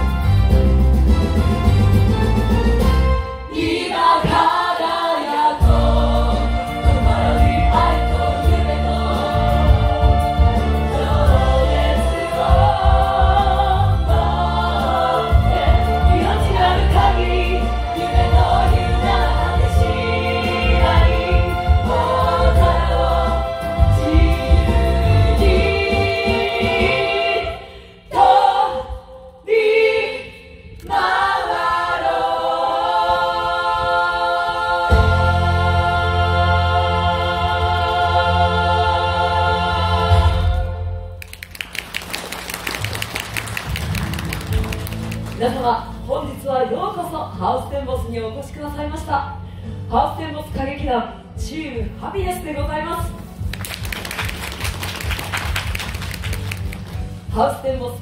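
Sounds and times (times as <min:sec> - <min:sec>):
instrumental accompaniment with bass: 0:00.0 - 0:27.6, 0:32.5 - 0:58.0
group of voices singing: 0:03.5 - 0:41.2.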